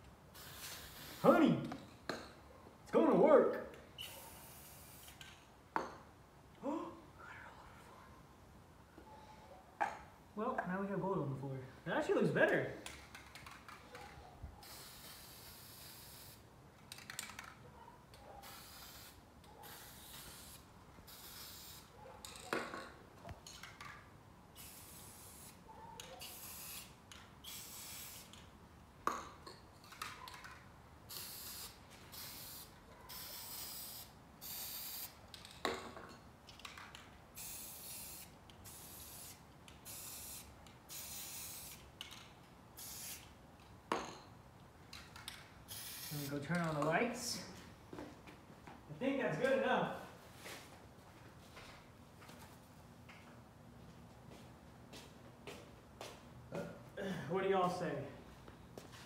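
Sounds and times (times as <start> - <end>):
spray paint can hissing: 0.3 - 1.4, 4.0 - 5.4, 14.6 - 17.5, 18.4 - 22.5, 24.5 - 28.5, 31.1 - 35.2, 37.3 - 42.2, 42.8 - 43.4, 45.6 - 46.5.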